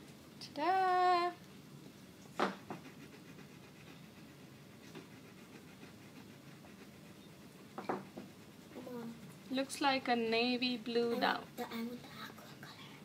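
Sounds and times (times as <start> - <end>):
pastel scratching on paper: 2.4 - 10.0.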